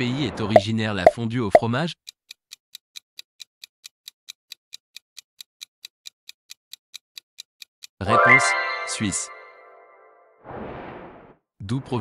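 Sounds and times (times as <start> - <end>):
clock-like ticking: 0.5 - 8.0.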